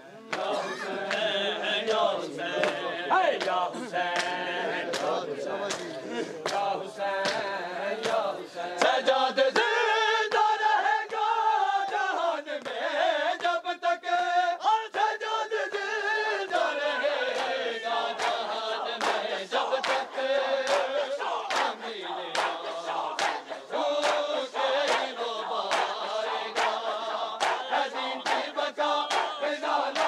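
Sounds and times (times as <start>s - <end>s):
crowd of men chanting a lament: 0.0s - 30.0s
chest-beating slaps: 3.4s - 8.2s, 20.7s - 30.0s.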